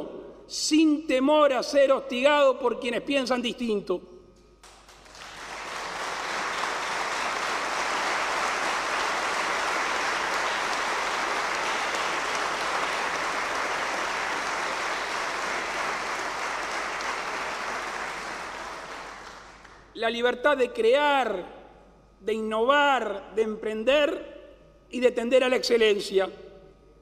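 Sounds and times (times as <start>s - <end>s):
crowd applauding: 4.6s - 19.9s.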